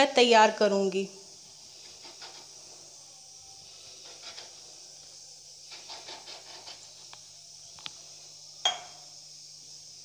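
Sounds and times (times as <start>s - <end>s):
faint steady hiss: 0.0s - 10.0s
glass scraping and tapping dough: 8.6s - 9.0s.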